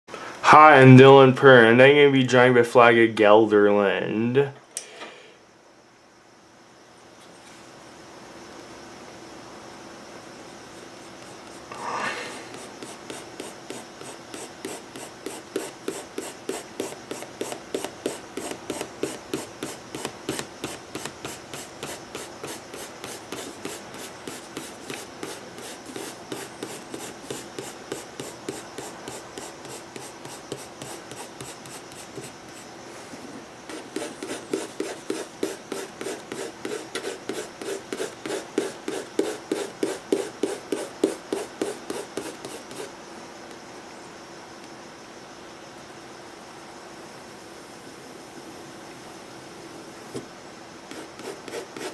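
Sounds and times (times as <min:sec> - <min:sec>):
pencil scratching on paper: 0:10.7 - 0:11.7, 0:12.3 - 0:32.7, 0:33.7 - 0:42.9, 0:50.9 - 0:51.9.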